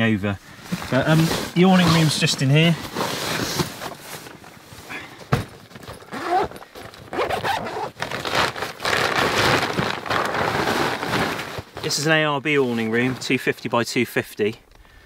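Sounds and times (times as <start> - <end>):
bag fabric rustling: 0.7 - 13.3
zipper being pulled open: 5.9 - 11.8.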